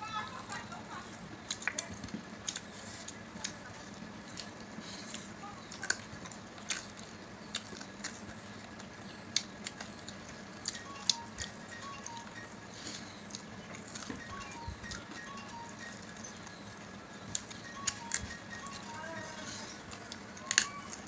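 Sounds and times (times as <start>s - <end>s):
low steady hum: 0.0s - 21.0s
chewing smacks: 1.4s - 15.1s.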